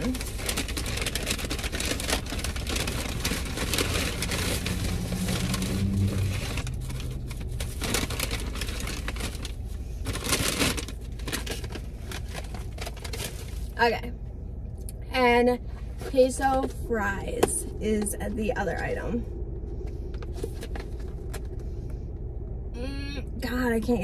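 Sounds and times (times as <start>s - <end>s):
paper bag rustling and crinkling: 0.0s - 13.8s.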